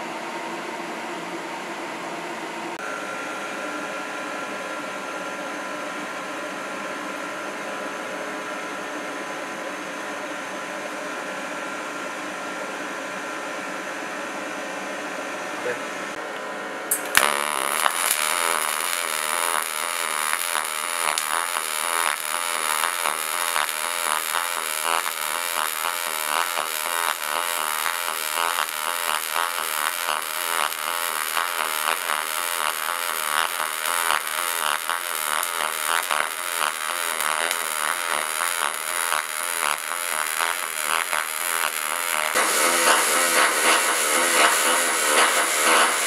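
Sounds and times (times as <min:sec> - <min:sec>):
welding arc buzzing and crackling: 0:16.9 - 0:46.0.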